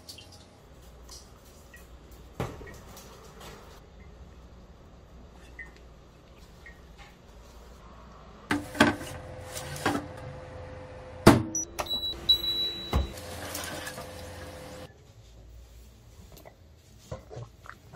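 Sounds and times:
oven humming: 8.5s - 14.9s
short electronic beeps: 11.6s - 13.2s.

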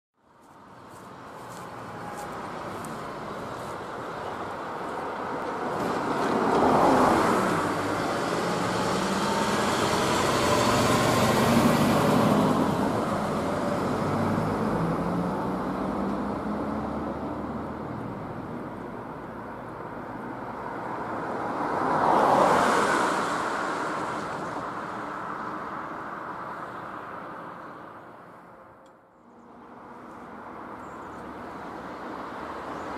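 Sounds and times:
cars driving past: 0.4s - 32.9s
truck engine passing: 1.2s - 18.7s.

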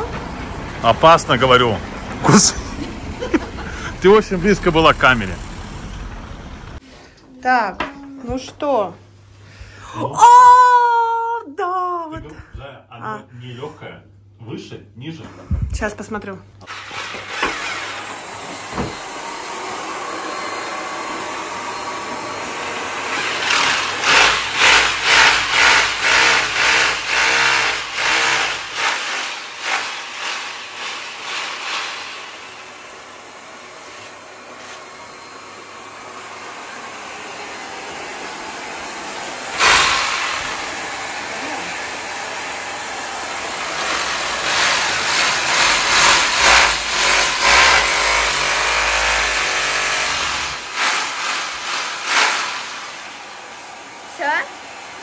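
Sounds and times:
electric drill pulsing bursts: 16.6s - 53.6s.

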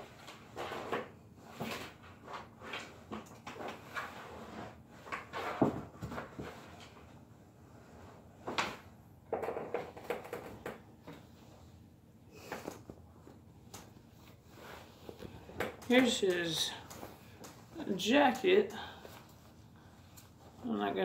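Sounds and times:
fabric rustling: 11.2s - 21.0s.

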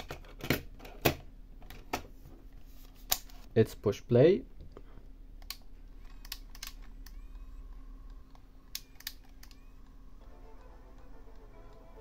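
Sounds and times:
buttons clicking: 8.1s - 10.0s.

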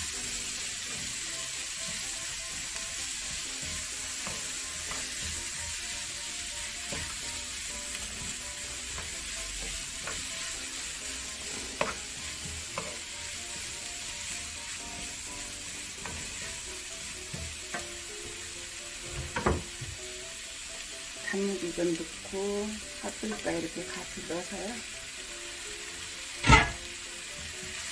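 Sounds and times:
vegetables sizzling in oil: 0.0s - 27.9s
spatula knocking on pan: 3.3s - 5.9s, 6.8s - 10.6s, 17.2s - 18.4s, 19.1s - 20.0s.

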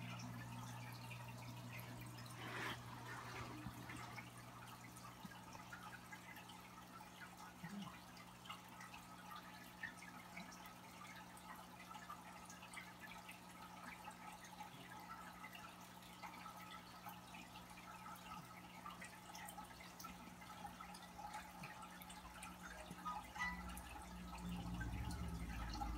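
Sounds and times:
aquarium bubbles popping: 0.0s - 25.9s
steady low hum: 22.7s - 25.9s.

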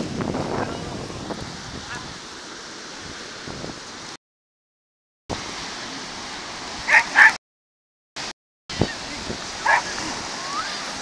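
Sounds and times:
wind on microphone: 0.0s - 2.3s, 3.0s - 4.2s, 8.7s - 11.0s
small waves washing on shore: 0.0s - 4.2s, 5.3s - 7.4s, 8.2s - 11.0s.

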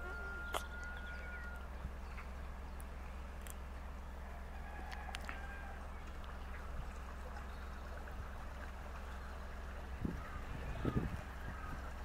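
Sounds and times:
faint high chirps: 0.0s - 2.8s
boat engine ticking over: 0.0s - 12.0s.

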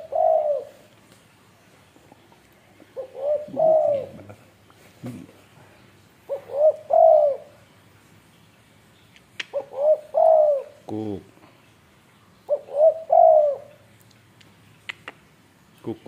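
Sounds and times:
dove cooing: 0.0s - 0.9s, 2.0s - 5.5s, 6.2s - 7.6s, 9.4s - 11.2s, 12.5s - 13.8s.

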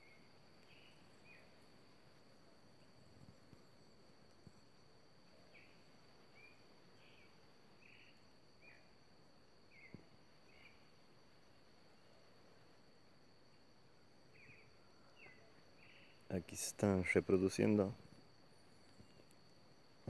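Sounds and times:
small bird chirping: 0.0s - 1.6s, 9.7s - 10.9s
thin high insect drone: 0.0s - 20.0s
faint clicks: 18.8s - 19.4s.

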